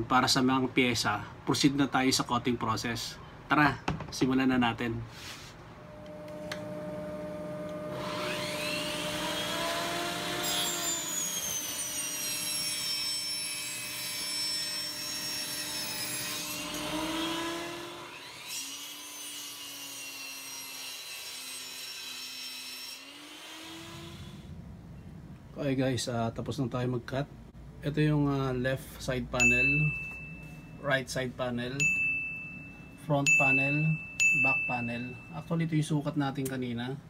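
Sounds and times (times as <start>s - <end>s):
table saw cutting board: 6.2s - 24.5s.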